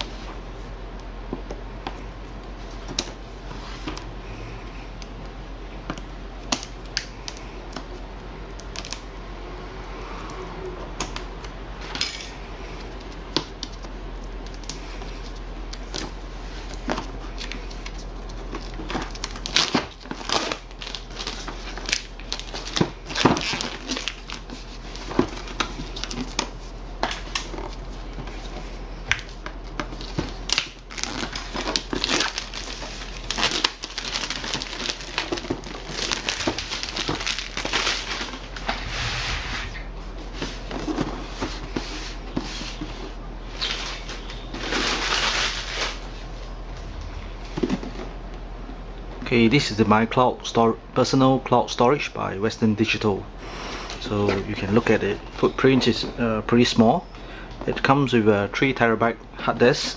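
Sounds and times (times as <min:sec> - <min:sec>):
plastic wrap crinkling: 0:14.3 - 0:48.0.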